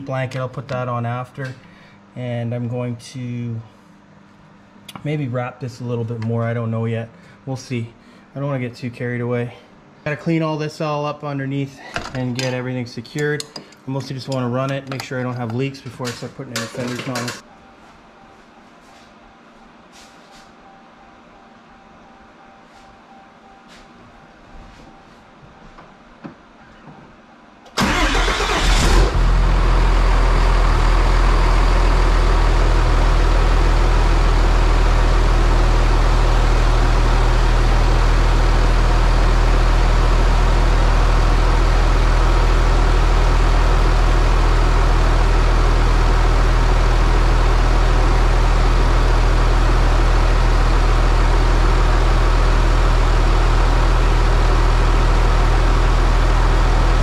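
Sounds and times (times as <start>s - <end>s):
diesel engine cranking and idling: 27.7s - 57.0s.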